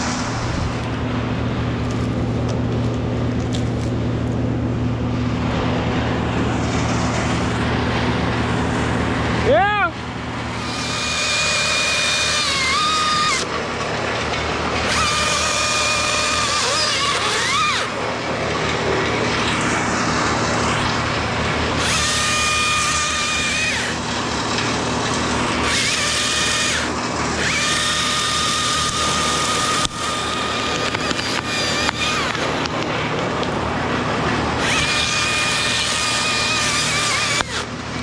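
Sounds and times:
steady low rumble: 0:00.0 - 0:10.9
chainsaw whining cutting wood: 0:10.4 - 0:18.2, 0:21.7 - 0:33.5, 0:34.5 - 0:38.0.

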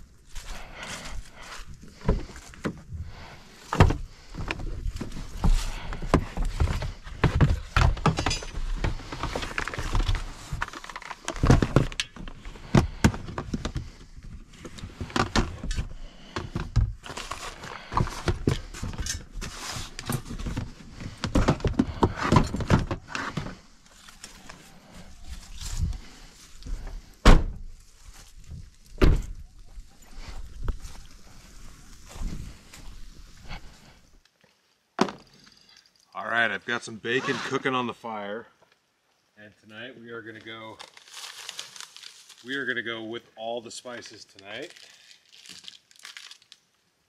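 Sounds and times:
plastic totes knocking and rattling: 0:03.7 - 0:14.0, 0:14.6 - 0:19.4, 0:20.0 - 0:23.6.

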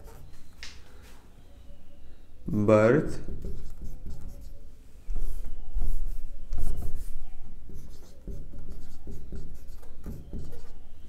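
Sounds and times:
marker pen writing on whiteboard: 0:00.0 - 0:00.3, 0:03.0 - 0:10.9.

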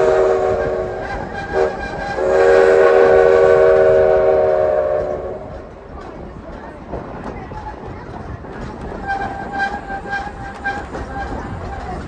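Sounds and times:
steam locomotive whistle: 0:00.0 - 0:05.6, 0:09.0 - 0:12.0.

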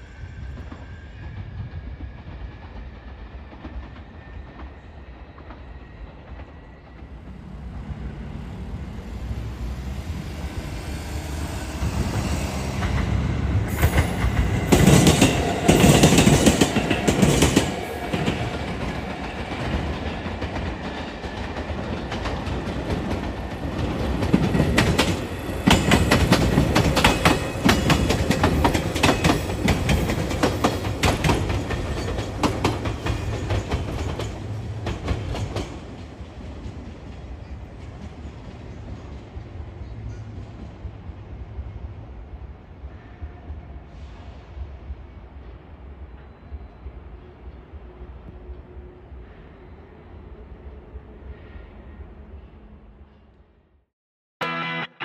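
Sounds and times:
train wheels clacking over rails: 0:11.0 - 0:37.2.

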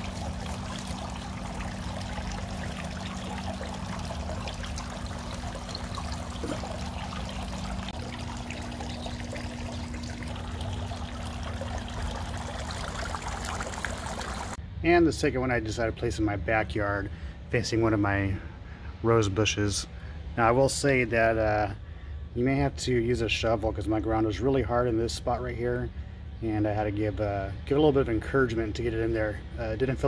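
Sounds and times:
fountain water trickling and splashing: 0:00.0 - 0:14.6.

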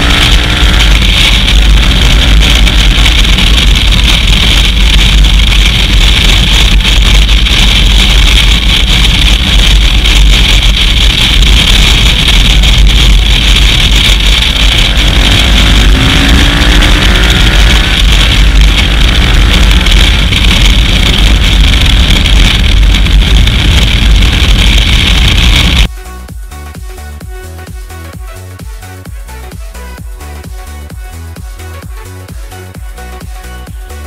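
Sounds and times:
wind buffeting microphone: 0:00.0 - 0:25.9
motorcycle engine: 0:00.0 - 0:34.0.

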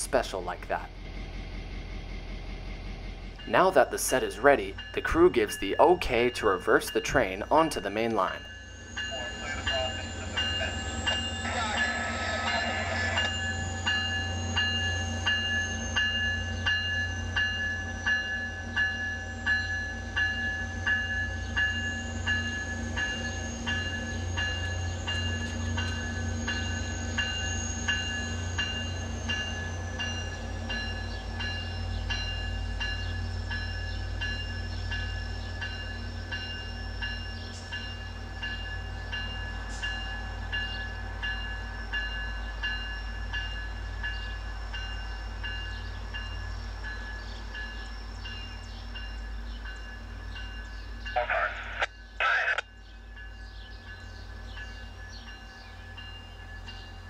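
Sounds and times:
diesel engine running: 0:00.0 - 0:06.4
locomotive bell ringing: 0:00.0 - 0:57.0.

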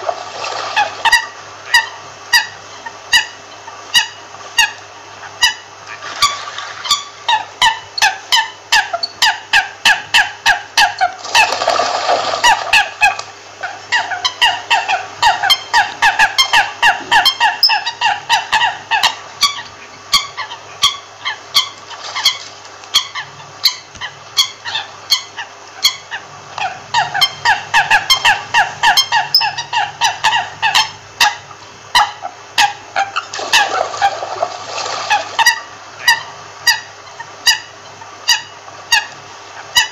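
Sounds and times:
faint steady hum: 0:00.0 - 0:39.9
coots calling: 0:12.2 - 0:39.9.

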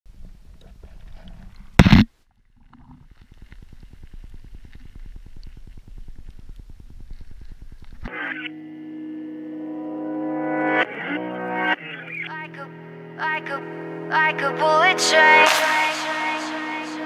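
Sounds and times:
wind rumbling on microphone: 0:02.9 - 0:08.1.

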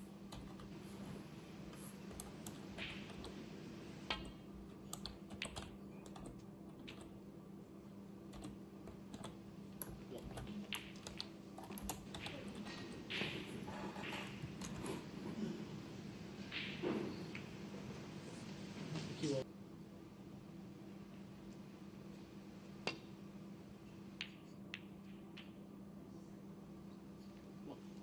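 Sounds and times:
faint steady hum: 0:00.0 - 0:28.0
typing on computer keyboard: 0:04.9 - 0:07.1, 0:08.3 - 0:12.4.

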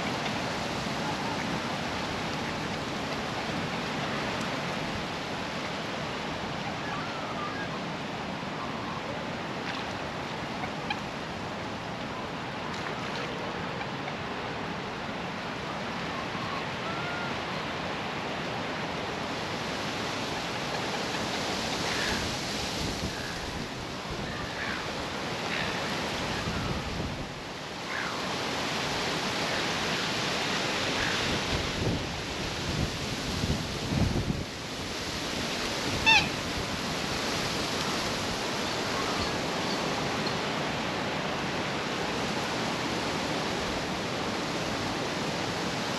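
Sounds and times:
strong wind through trees: 0:00.0 - 0:45.9
faint short bird calls: 0:36.0 - 0:36.4.

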